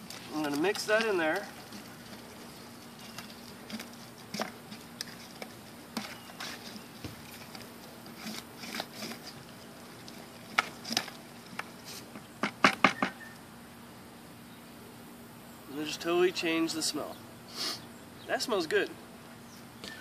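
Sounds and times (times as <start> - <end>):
stick knocking against plastic bucket: 12.4 - 13.2.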